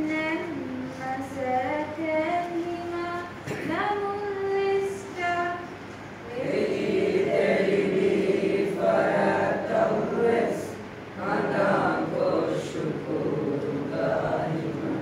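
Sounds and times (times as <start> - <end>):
group singing together: 6.2 - 15.0.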